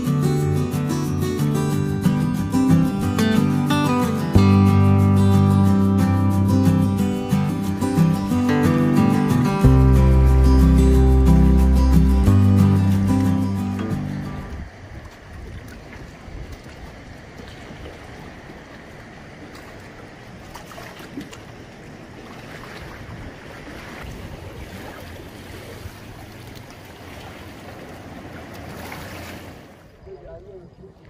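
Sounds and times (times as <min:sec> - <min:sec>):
wind buffeting microphone: 0:11.6 - 0:20.5, 0:21.1 - 0:28.9
sea water sloshing on concrete: 0:14.6 - 0:29.9.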